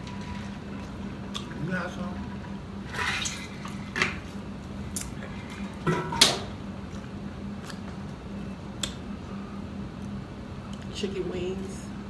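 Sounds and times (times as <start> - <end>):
steady low hum: 0.0 - 12.0
eating clicks and smacks: 8.8 - 9.0.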